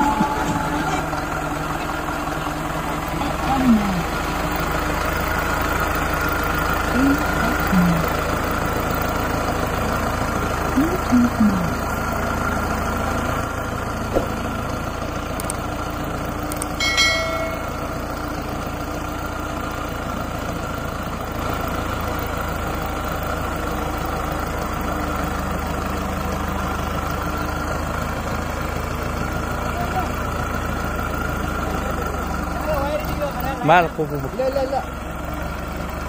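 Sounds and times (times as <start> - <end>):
tractor diesel engine idling: 0.0 - 36.0
short ringing sound: 16.8 - 18.0.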